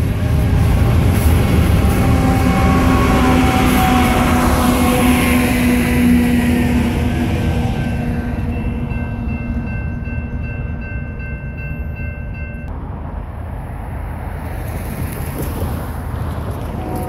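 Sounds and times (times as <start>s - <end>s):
train horn chord: 0.0s - 9.7s, 16.6s - 17.0s
diesel freight train rumbling: 0.0s - 17.0s.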